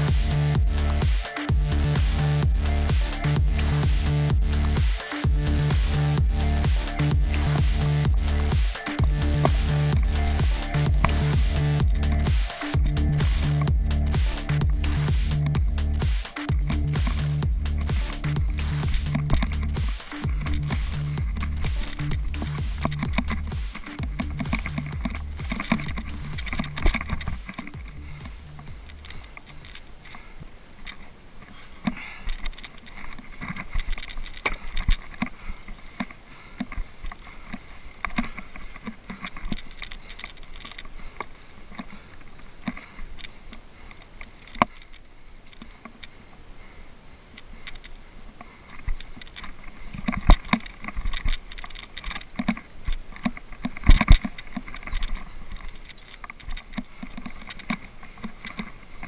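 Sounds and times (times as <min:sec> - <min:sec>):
light background rush: 0:00.0 - 0:59.0
hands and boots scraping rock: 0:16.7 - 0:30.3.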